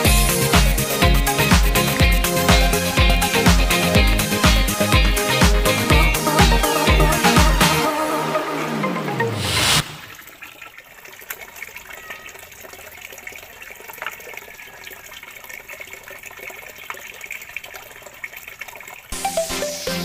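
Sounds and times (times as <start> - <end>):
electronic music: 0.0 - 10.1, 19.1 - 20.0
water splashing: 0.0 - 19.9
water dripping: 9.9 - 20.0.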